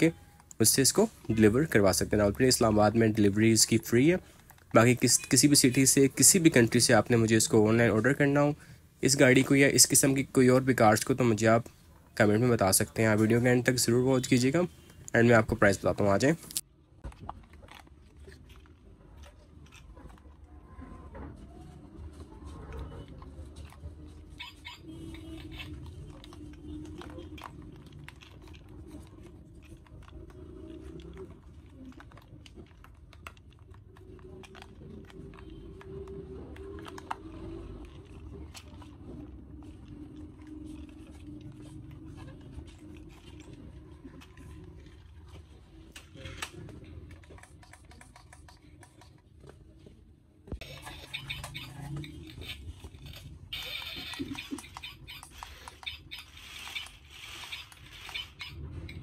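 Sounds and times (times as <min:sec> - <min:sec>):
toy car clicking on tile: 0:50.7 - 0:59.0.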